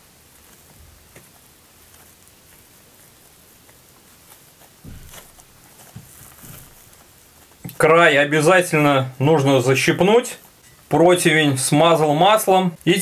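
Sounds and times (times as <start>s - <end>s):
sticky dough crackling: 0.0s - 13.0s
soft knock: 4.8s - 7.0s.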